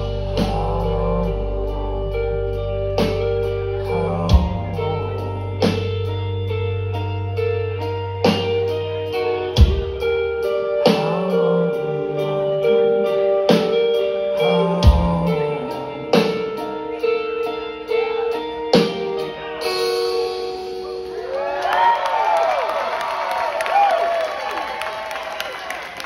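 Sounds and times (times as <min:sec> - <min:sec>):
deep low bass drone: 0:00.0 - 0:13.5, 0:14.2 - 0:16.2
held electric guitar notes: 0:00.0 - 0:21.8
rock band playing: 0:00.0 - 0:23.9.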